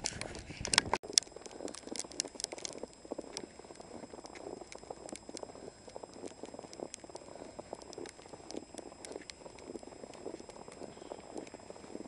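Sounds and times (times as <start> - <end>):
footsteps crunching in snow: 0.2 - 12.0.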